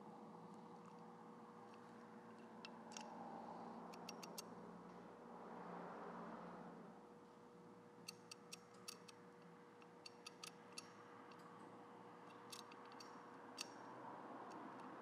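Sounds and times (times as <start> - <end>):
ratchet pawl clicking: 10.1 - 11.4, 12.3 - 13.8.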